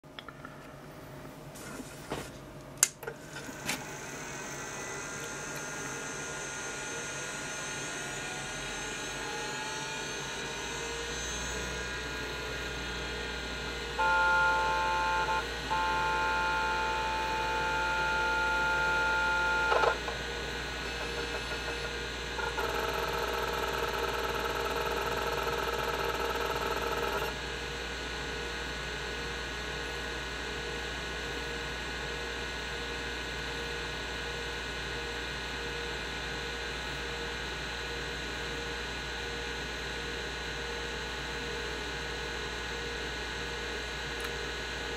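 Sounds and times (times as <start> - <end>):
hard drive whine: 3.0 - 44.9
hard drive humming: 3.7 - 28.7.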